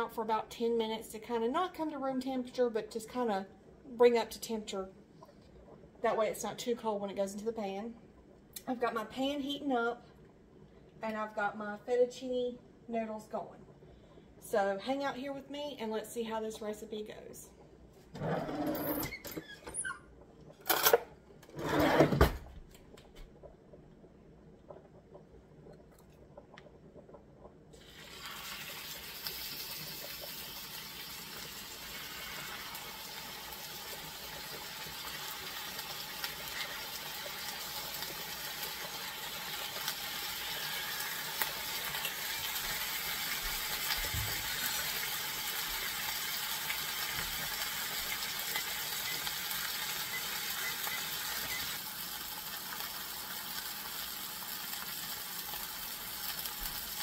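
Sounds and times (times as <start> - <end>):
steaks sizzling in hot oil: 27.8 - 57.0.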